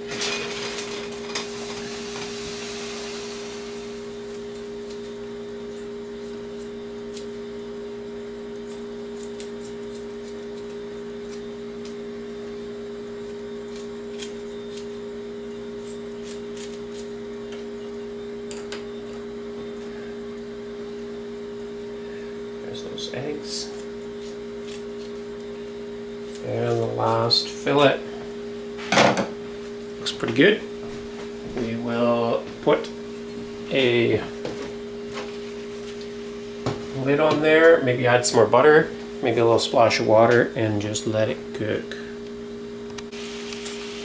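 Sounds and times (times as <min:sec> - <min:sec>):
low two-tone hum: 0:00.0 - 0:44.0
hiss: 0:01.6 - 0:03.9
scissors snipping clicks: 0:16.2 - 0:17.1.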